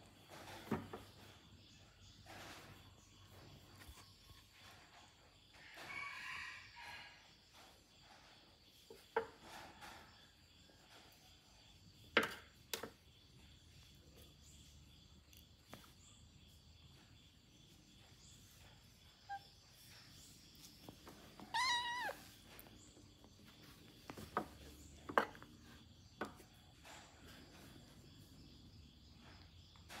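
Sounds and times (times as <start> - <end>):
cats scuffling and knocking: 0.0 - 6.3, 15.5 - 30.0
cat meowing: 21.4 - 22.4.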